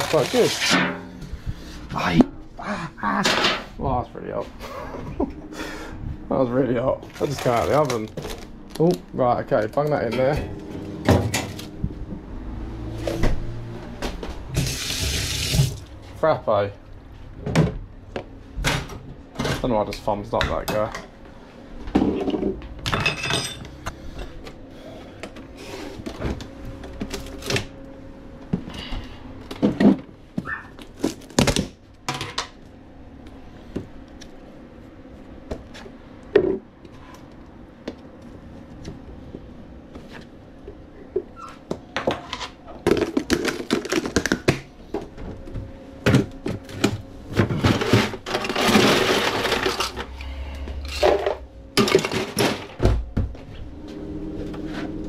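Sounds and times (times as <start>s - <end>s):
faint steady hum: 0.0s - 13.4s, 14.2s - 55.0s.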